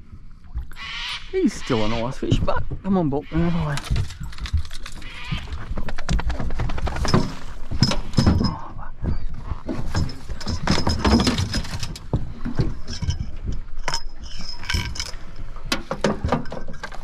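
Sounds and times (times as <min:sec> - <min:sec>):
knocks and clinks of gear: 0:03.6 - 0:17.0.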